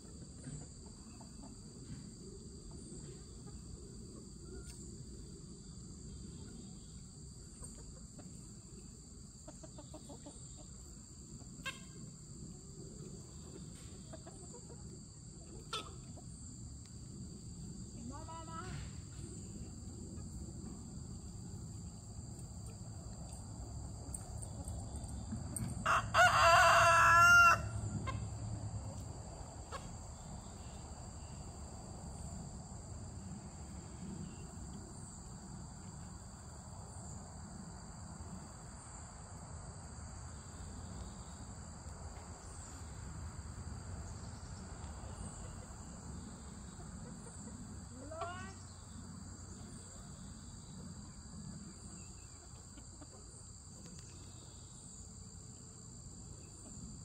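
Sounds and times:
rooster crowing: 25.8s - 28.2s.

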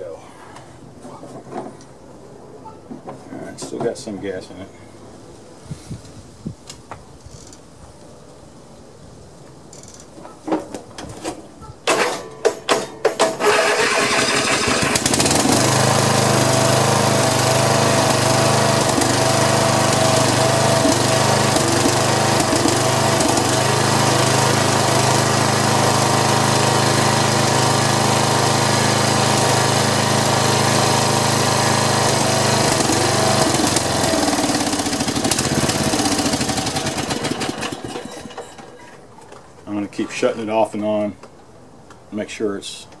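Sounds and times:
mower engine starting and running: 11.9s - 40.2s.

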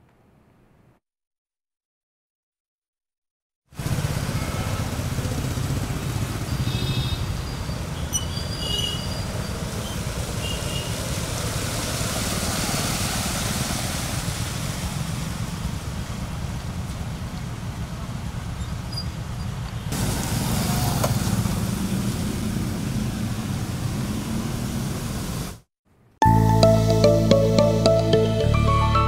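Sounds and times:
vehicle engines running: 3.8s - 25.6s
tyres hissing through water: 3.8s - 25.7s.

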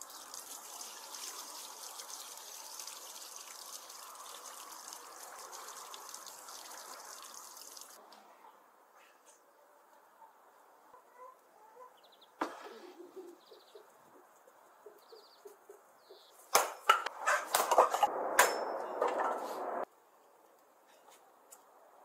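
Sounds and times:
hens clucking: 10.2s - 15.8s.

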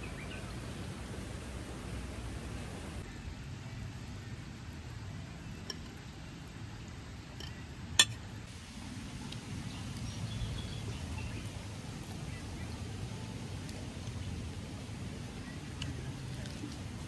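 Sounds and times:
tableware clicking: 7.4s - 8.2s.

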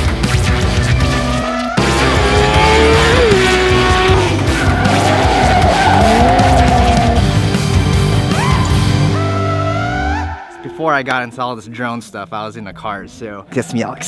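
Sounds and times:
music: 0.0s - 10.6s
kart engine revving: 1.0s - 10.4s
tyres squealing on asphalt: 1.1s - 7.3s, 8.3s - 11.0s.

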